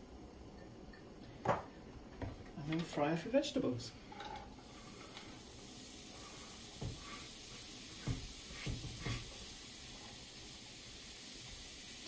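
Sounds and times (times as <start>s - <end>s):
vegetables sizzling in a frying pan: 3.2s - 12.0s.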